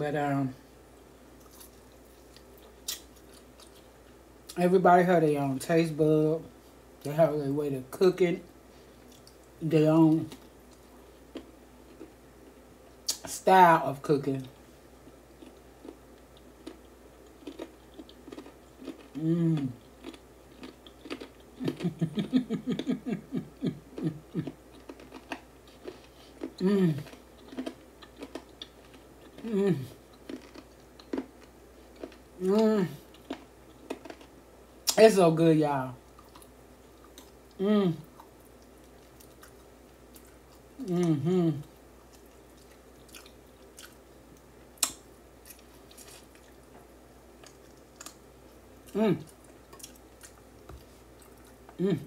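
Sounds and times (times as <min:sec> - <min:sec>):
woman chewing meat: 0:15.0 - 0:32.3, 0:33.0 - 0:34.4, 0:36.0 - 0:51.8
woman humming mm-mm: 0:19.2 - 0:19.8, 0:26.6 - 0:27.1, 0:29.4 - 0:30.0, 0:37.6 - 0:38.1, 0:40.8 - 0:41.7, 0:51.7 - 0:52.0.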